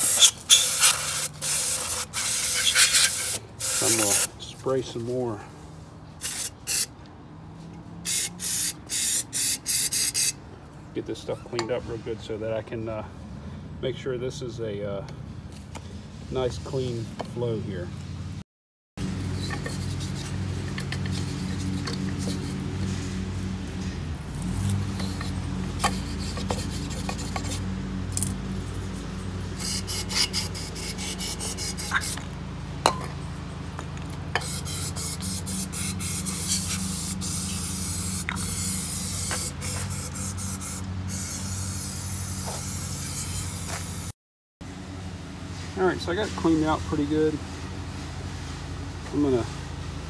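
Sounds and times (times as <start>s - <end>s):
brush scrubbing: 0.0s - 4.3s, 19.4s - 23.2s, 24.4s - 27.7s
aerosol spray hissing: 8.1s - 10.3s, 34.4s - 44.1s.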